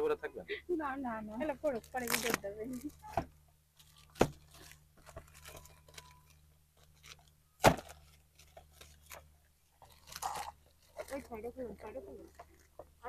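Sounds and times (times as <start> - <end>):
plastic gift wrap crinkling: 1.4 - 13.0
sharp rip of wrapping: 1.8 - 2.9, 9.9 - 11.2.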